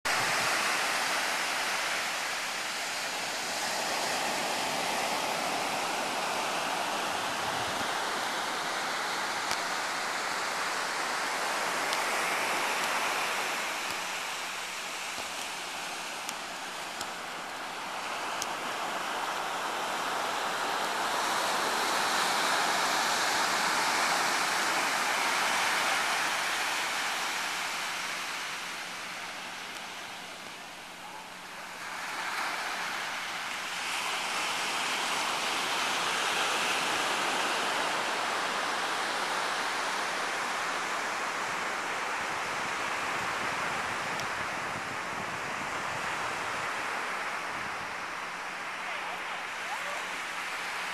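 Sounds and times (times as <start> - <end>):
ocean surf breaking on beach: 0.1 - 50.9.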